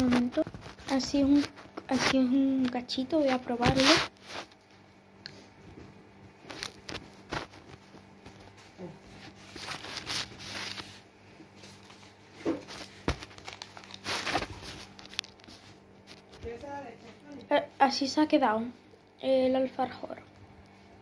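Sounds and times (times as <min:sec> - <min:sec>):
small clicks and rustles: 0:06.4 - 0:08.6, 0:11.6 - 0:17.4.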